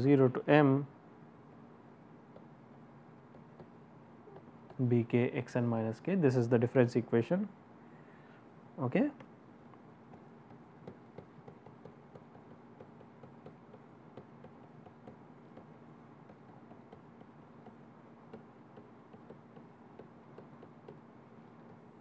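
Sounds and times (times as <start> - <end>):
steady low hum: 0.0 - 22.0
stylus tapping on a tablet screen: 2.3 - 2.6, 3.2 - 4.8, 10.0 - 22.0.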